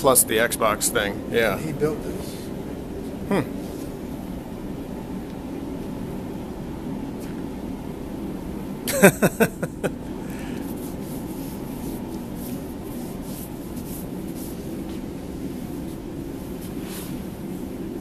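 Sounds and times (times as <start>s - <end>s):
steady low hum: 0.0s - 18.0s
hands scraping sand: 9.4s - 15.0s.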